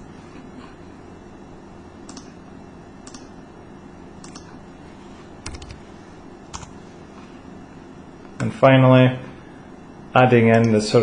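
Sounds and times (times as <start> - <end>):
faint room hiss: 0.0 - 11.0
computer mouse clicking: 2.1 - 2.4, 3.0 - 3.3, 4.2 - 4.6, 5.4 - 5.8, 6.5 - 6.8.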